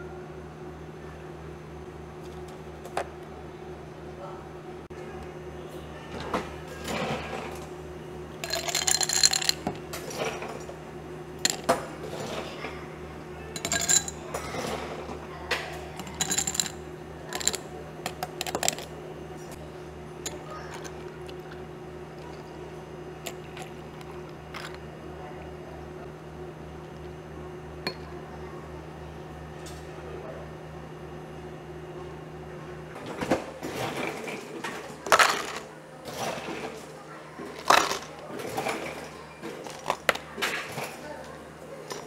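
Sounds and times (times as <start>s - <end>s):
low equipment hum: 0.0s - 42.0s
ice cubes clinking into glasses: 8.4s - 9.6s, 11.4s - 11.8s, 13.6s - 14.3s, 16.0s - 18.9s, 35.1s - 35.7s, 37.6s - 38.9s.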